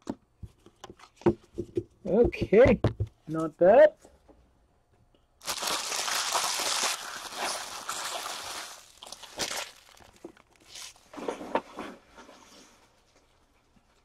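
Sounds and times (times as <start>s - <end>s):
cards rustling: 5.4s - 11.1s
wrapper crinkling and tearing: 5.4s - 11.2s.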